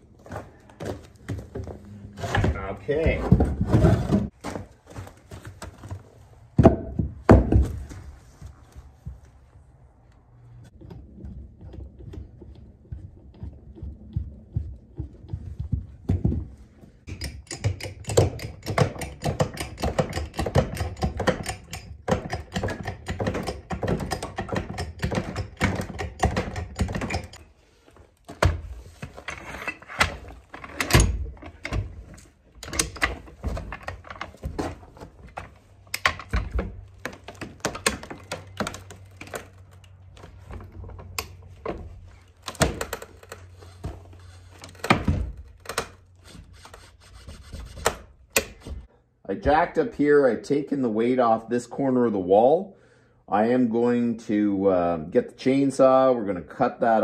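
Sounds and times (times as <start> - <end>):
farm jack metal clanks: 17.0 - 27.5, 28.3 - 46.0.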